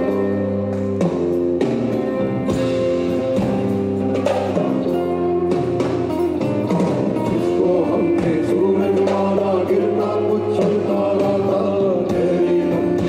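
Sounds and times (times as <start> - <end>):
live folk-rock band playing: 0.0 - 13.0
person singing: 7.2 - 13.0.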